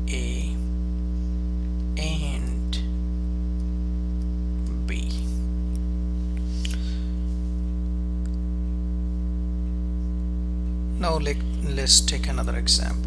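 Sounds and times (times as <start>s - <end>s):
voice: 0.0s - 0.6s, 2.0s - 2.9s, 4.7s - 5.4s, 11.0s - 13.0s
electrical mains hum: 0.0s - 13.0s.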